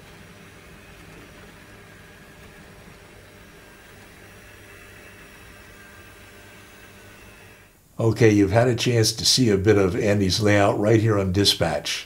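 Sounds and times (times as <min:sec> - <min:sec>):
model train whirring: 0:00.0 - 0:07.8
background hiss and hum: 0:00.0 - 0:12.0.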